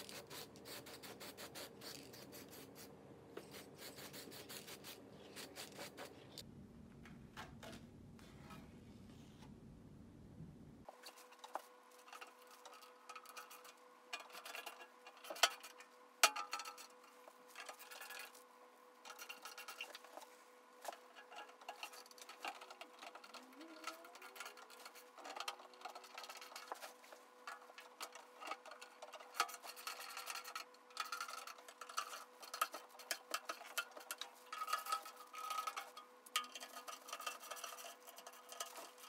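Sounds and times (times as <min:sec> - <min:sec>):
hands handling metal parts: 0:10.9 - 0:18.4, 0:19.0 - 0:39.0.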